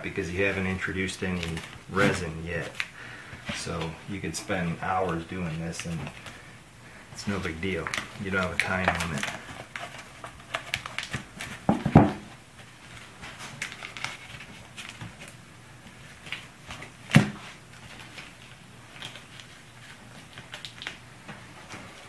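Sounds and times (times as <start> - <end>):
fabric and tape rustling: 0.4 - 6.4
knocks on wooden workbench: 11.7 - 12.3.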